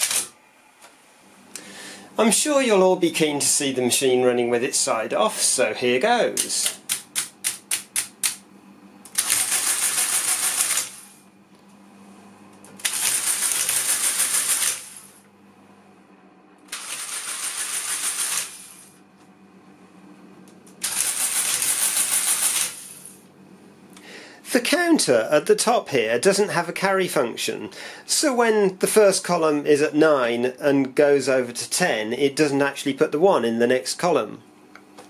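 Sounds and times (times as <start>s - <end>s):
faint steady hum: 0.0s - 13.8s, 14.8s - 16.9s, 18.4s - 22.0s, 22.6s - 35.0s.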